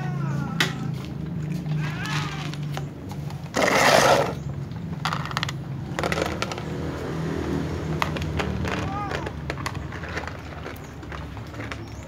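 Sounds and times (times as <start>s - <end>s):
plastic tubs and kibble rustling: 8.0s - 12.0s.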